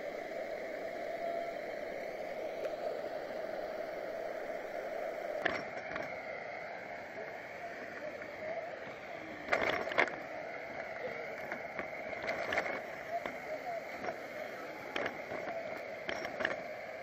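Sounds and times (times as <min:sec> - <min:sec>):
wind and rolling tyres hum: 0:00.0 - 0:17.0.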